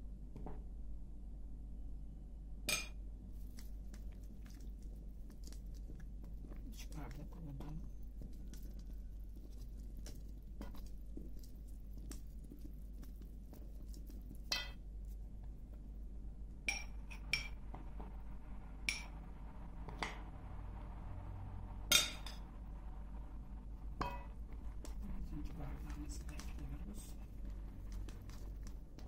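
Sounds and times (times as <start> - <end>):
soft scraping of stirring: 3.3 - 16.1, 24.0 - 29.0.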